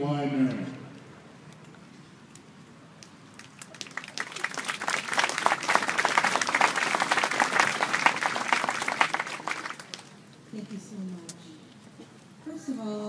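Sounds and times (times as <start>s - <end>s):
audience applauding: 3.4s - 10.2s.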